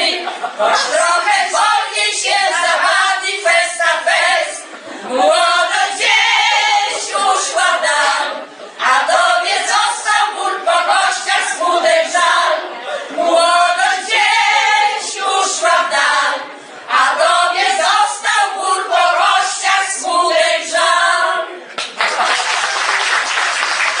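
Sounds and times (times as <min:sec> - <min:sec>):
women's choir singing: 0:00.0 - 0:21.7
audience applauding: 0:21.8 - 0:24.0.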